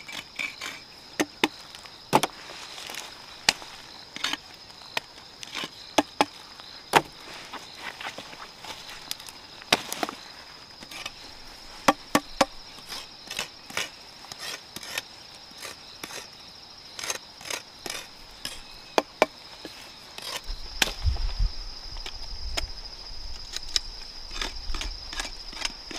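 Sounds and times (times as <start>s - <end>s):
crickets droning: 0.0s - 25.9s.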